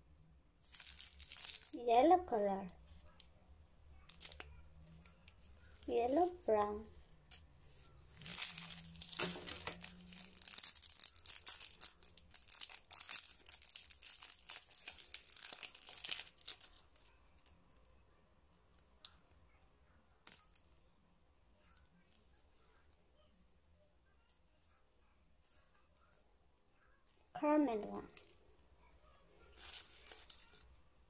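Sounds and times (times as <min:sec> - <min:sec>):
foil wrapper crinkling: 0:00.6 - 0:01.8, 0:04.0 - 0:17.6, 0:29.4 - 0:30.7.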